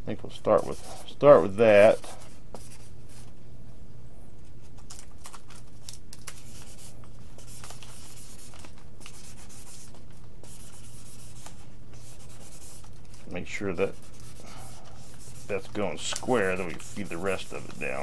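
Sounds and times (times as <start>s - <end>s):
iron rubbing over vinyl: 6.6s - 18.0s.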